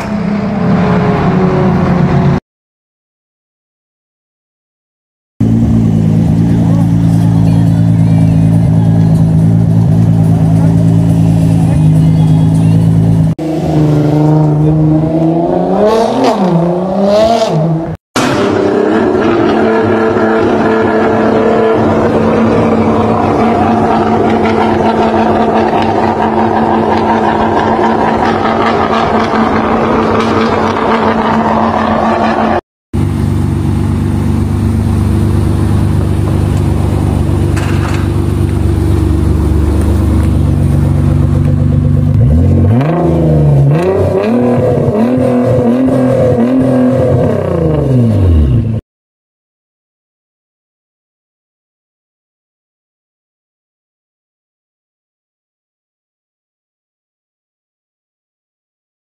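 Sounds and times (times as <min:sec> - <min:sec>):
car engine idling: 0:05.4 - 0:13.6, 0:33.0 - 0:43.8
car driving hard: 0:05.4 - 0:48.8
car engine revving: 0:05.4 - 0:48.8.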